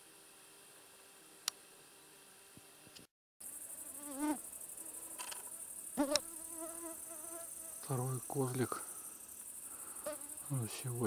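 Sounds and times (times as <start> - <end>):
faint steady hiss: 0.0 - 11.0
insects chirring: 3.4 - 11.0.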